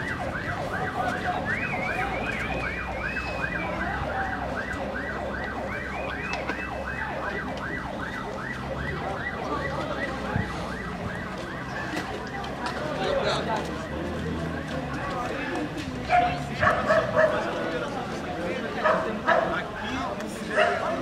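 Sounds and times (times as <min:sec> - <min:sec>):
higher siren sweeping slowly: 0:00.0 - 0:15.2.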